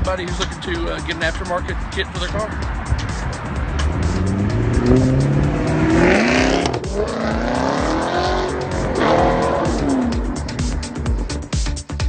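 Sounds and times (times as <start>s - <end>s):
background music with steady beat: 0.0s - 12.0s
car engine accelerating hard: 2.6s - 11.6s.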